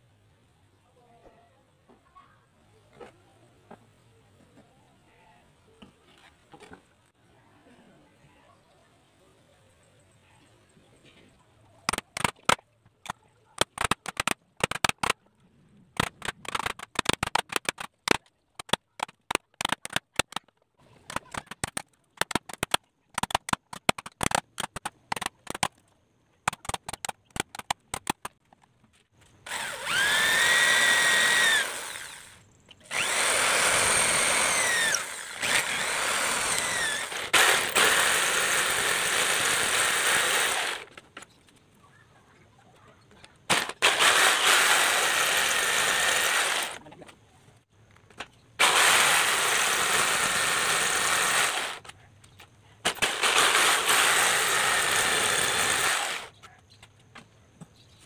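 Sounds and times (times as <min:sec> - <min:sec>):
electric jigsaw cutting wood: 0:16.0 - 0:20.4, 0:29.4 - 0:40.9, 0:43.5 - 0:46.8, 0:48.6 - 0:51.9, 0:52.9 - 0:56.3.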